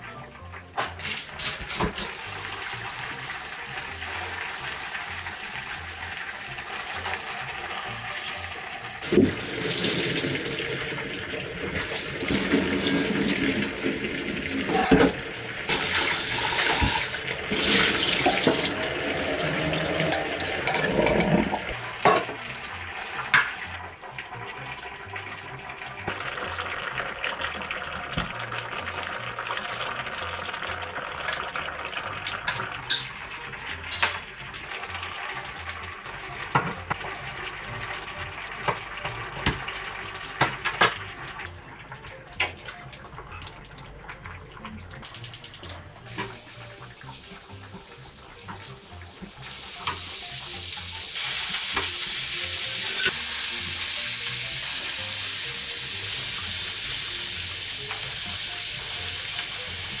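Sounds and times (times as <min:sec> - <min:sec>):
steel bowls and utensils clinking: 0:11.6 - 0:22.6, 0:31.2 - 0:34.4, 0:41.9 - 0:53.5
water poured into strainer: 0:15.7 - 0:21.8.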